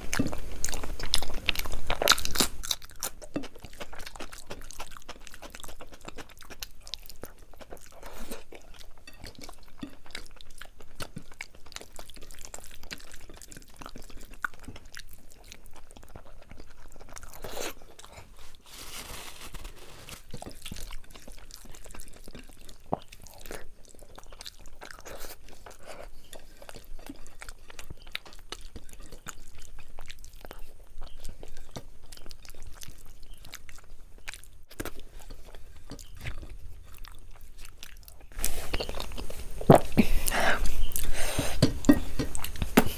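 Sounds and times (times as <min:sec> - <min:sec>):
person chewing food: 0:00.0 - 0:42.9
crunching: 0:17.3 - 0:40.0.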